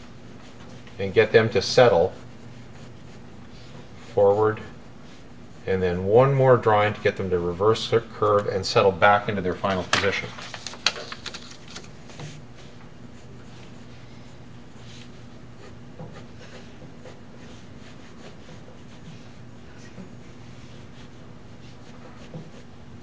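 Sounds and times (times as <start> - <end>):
steady low hum: 0.0 - 23.0
pencil scratching on paper: 0.3 - 6.1, 13.1 - 23.0.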